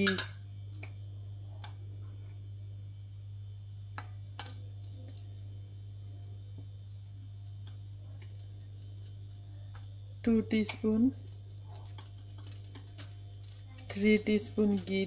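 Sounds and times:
spoon clicking on a pot: 0.0 - 0.3
steady low hum: 0.0 - 15.0.

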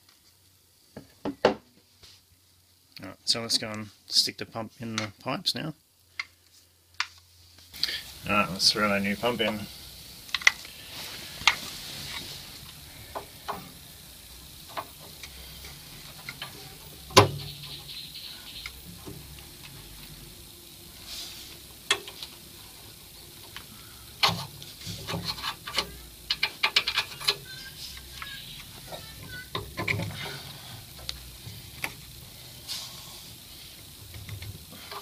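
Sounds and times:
clicks and knocks of pipe fittings: 21.9 - 22.3, 23.4 - 27.4, 29.5 - 30.3.

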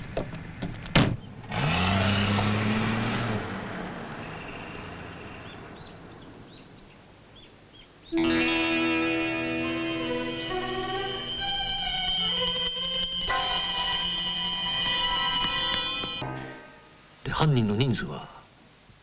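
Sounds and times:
car engine revving and driving off: 1.0 - 6.5
music: 8.1 - 17.0.

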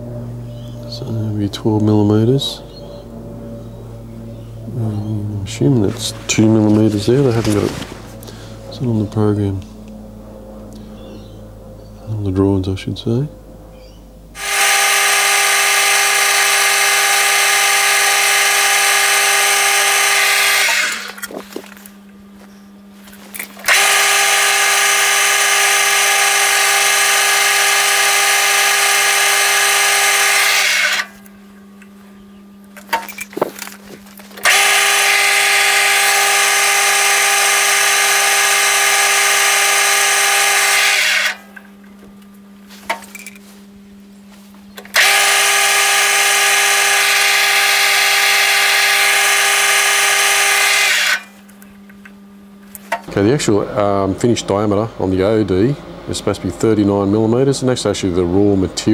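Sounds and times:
low hum: 0.0 - 58.9
metal lathe cutting whine: 14.4 - 21.4, 23.7 - 31.2, 34.4 - 41.5, 44.9 - 51.3.

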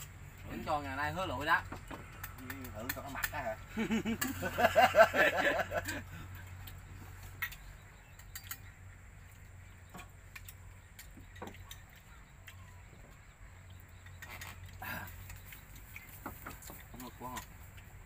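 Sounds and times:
utensils clinking against bowls: 7.4 - 8.8.

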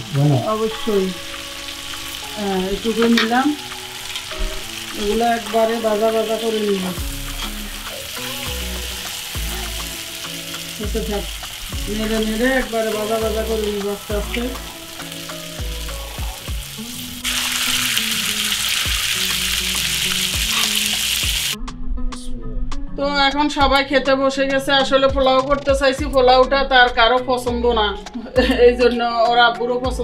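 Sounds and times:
meat sizzling in oil: 0.0 - 21.6.

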